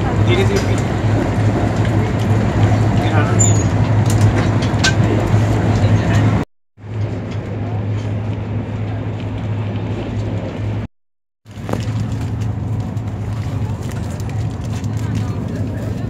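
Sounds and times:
train running noise inside carriage: 0.0 - 10.9.

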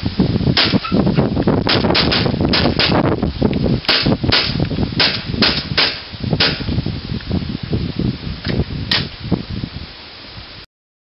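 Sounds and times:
airsoft gun shots: 0.6 - 1.0, 1.7 - 3.1, 3.9 - 6.7, 8.9 - 9.1.

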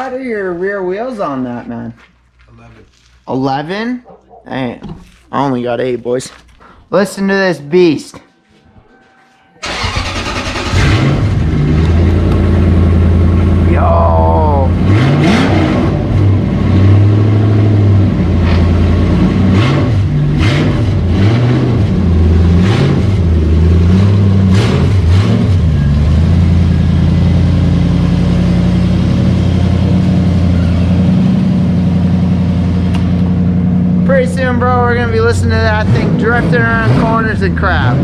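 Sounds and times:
car engine revving and idling: 9.6 - 38.0.

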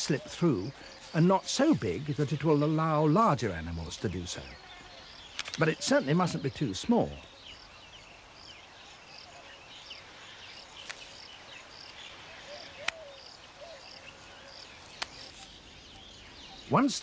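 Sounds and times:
faint bird twitters: 4.4 - 17.0
sharp clicks: 5.3 - 5.7.

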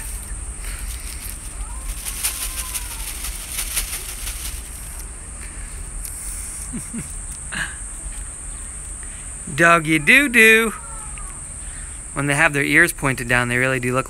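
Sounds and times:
brief rustles: 0.0 - 5.1.

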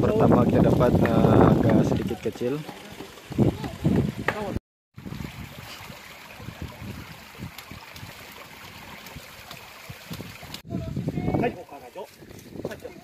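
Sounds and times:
stream water trickling: 0.1 - 13.0
small knocks and splashes: 0.4 - 10.6.

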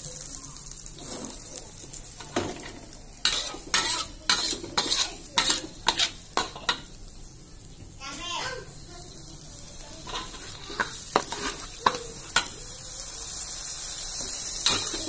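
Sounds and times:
spice paste sizzling in oil: 0.0 - 15.0
metal spatula scraping a wok: 0.8 - 6.9, 9.8 - 12.6, 13.5 - 15.0.

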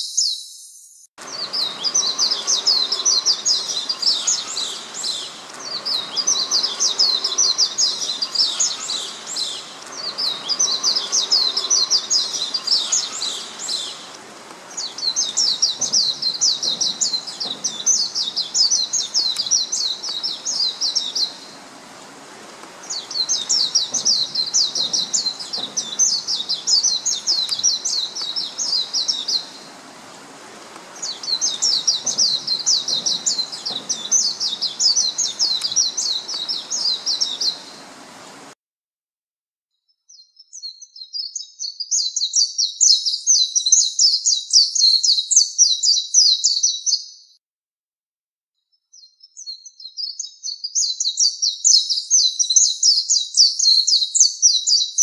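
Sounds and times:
bird twittering song: 0.0 - 38.5.

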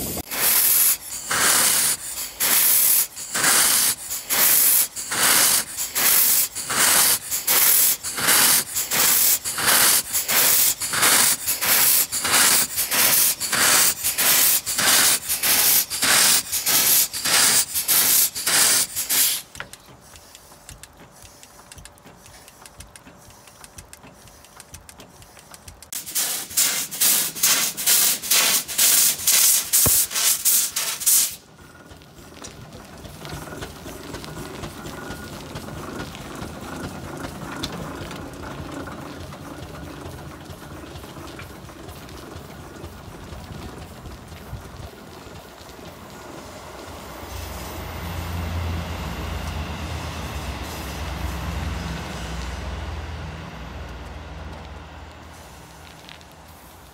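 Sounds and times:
hissing blasts of steam: 0.0 - 31.7, 46.0 - 53.8, 55.1 - 56.9
steam engine turning over quietly: 0.0 - 56.9.

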